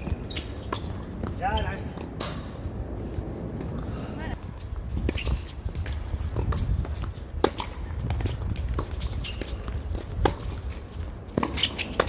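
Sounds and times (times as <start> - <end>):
tennis ball struck and bouncing: 5.1 - 12.0.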